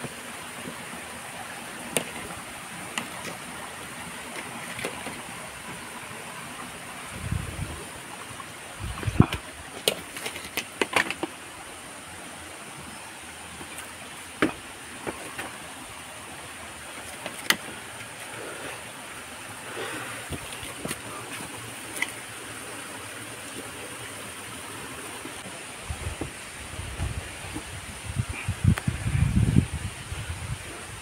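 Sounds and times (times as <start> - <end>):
stream running: 0.0 - 31.0.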